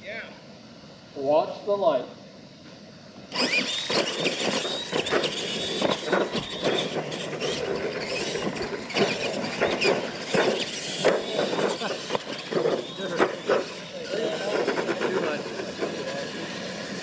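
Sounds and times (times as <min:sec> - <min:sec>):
motor and gear whine: 0:02.4 - 0:17.0
tyres knocking and crunching: 0:03.9 - 0:13.7.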